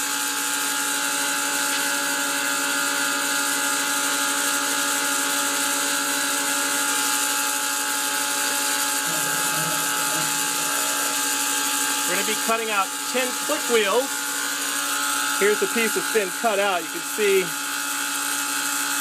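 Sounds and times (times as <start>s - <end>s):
milling machine spindle whine: 5.7s - 18.6s
end mill cutting plastic: 8.1s - 17.8s.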